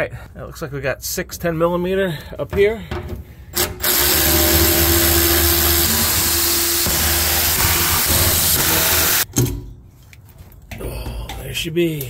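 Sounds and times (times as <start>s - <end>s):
cordless ratchet motor running: 3.6s - 9.2s.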